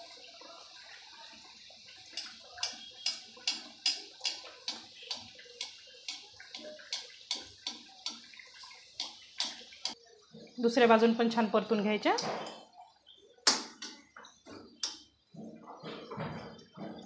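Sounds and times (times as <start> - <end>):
deep-frying sizzle in oil: 0.0 - 17.0
metal spoon clinking on pan: 2.1 - 8.3.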